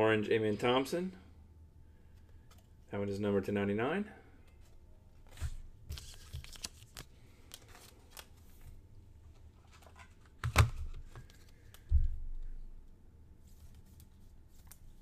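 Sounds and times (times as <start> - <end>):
plastic card sleeve rustling: 4.5 - 11.9.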